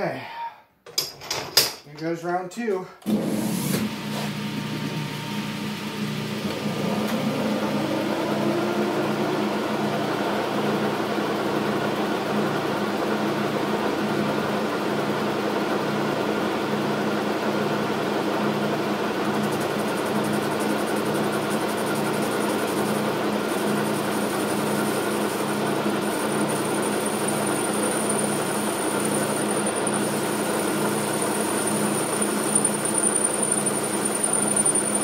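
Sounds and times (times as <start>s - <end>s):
metal lathe drive hum: 18.0s - 35.0s
lathe cutting noise: 19.0s - 35.0s.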